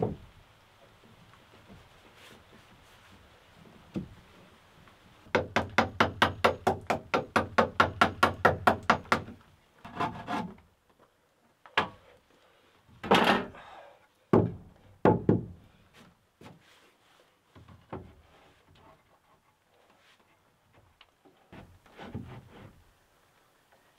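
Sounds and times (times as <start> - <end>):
wooden plank knocks and thunks: 0.0 - 0.3, 3.9 - 4.2, 14.3 - 15.6, 17.6 - 18.2.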